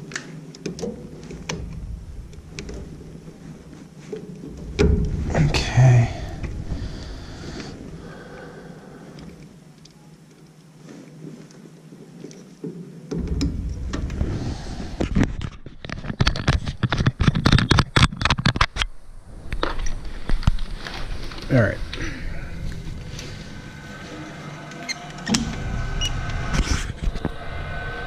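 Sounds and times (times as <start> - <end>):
rustling and scraping: 0.0 - 28.0
low rumble: 1.0 - 9.4, 13.2 - 15.8, 18.8 - 28.0.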